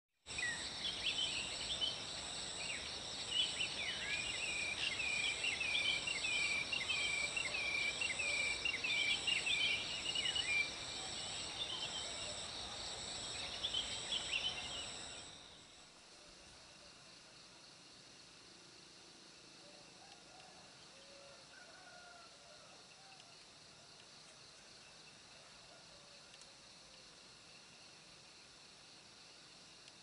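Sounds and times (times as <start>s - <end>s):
insects chorus with pulsing trill: 0.3s - 24.1s.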